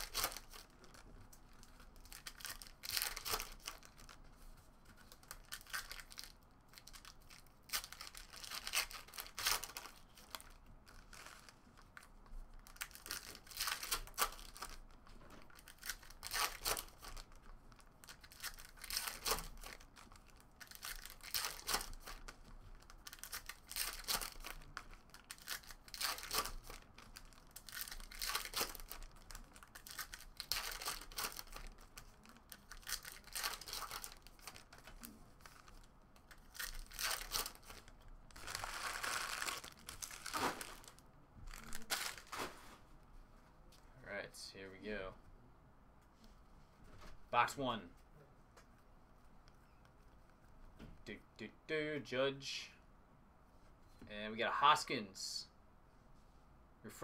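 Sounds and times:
foil wrappers tearing and crinkling: 0.0s - 1.0s, 1.6s - 4.2s, 5.2s - 14.8s, 15.5s - 42.6s.

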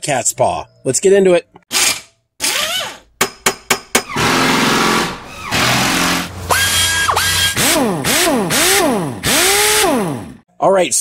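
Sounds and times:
sharp knocks: 3.2s - 6.3s
power tool motor whining: 4.2s - 10.4s.

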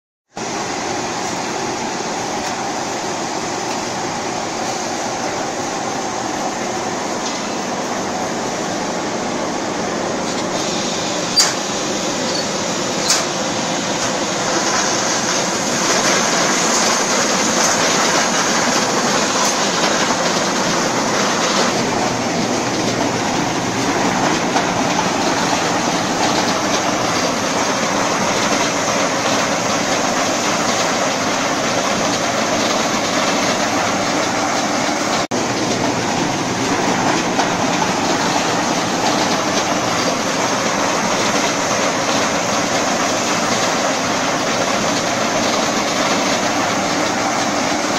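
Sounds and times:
garlic rattling on conveyor: 10.3s - 47.9s.

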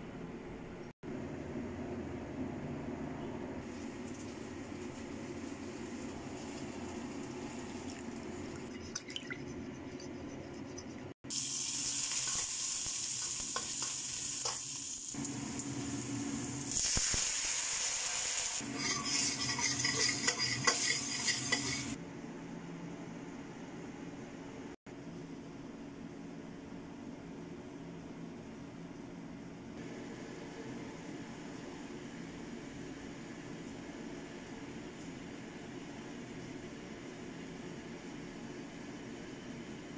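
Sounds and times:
garlic sizzling in oil: 3.6s - 8.6s, 11.3s - 22.0s
metal spatula scraping pan: 18.6s - 22.0s.

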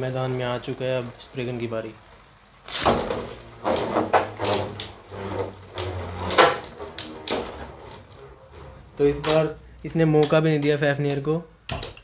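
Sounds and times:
spinning tops clacking: 0.0s - 8.2s
spinning tops whirring: 0.0s - 10.6s.

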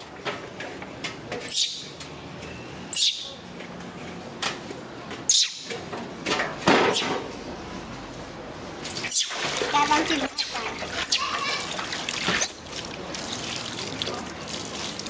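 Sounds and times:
baby monkey screaming: 10.2s - 11.7s.

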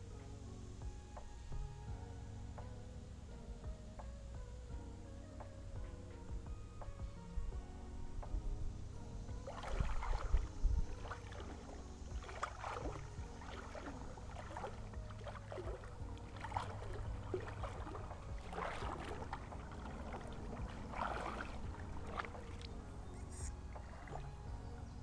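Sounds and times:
low steady rumble: 0.0s - 25.0s
creek water sloshing and splashing: 8.3s - 25.0s.

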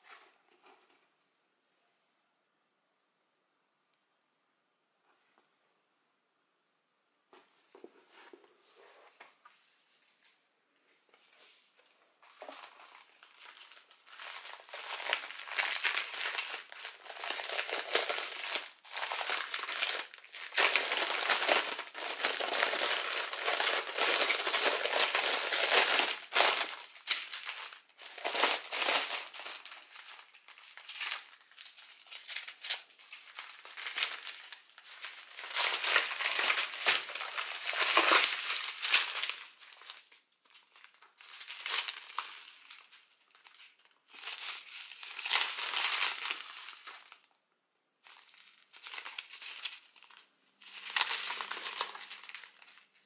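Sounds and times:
plastic packaging crinkling: 12.2s - 47.4s, 48.0s - 53.0s.

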